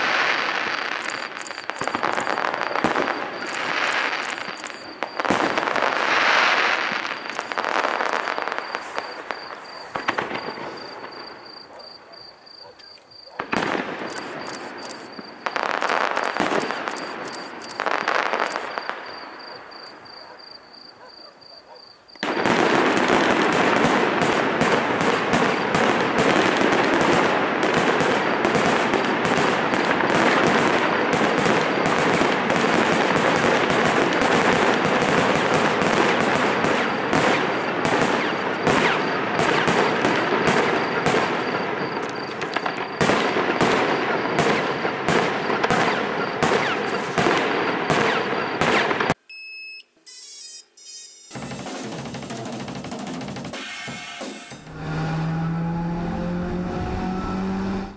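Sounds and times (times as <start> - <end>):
fireworks bangs and crackles: 0.0 - 12.0, 13.3 - 21.0, 22.1 - 49.2, 51.3 - 55.1.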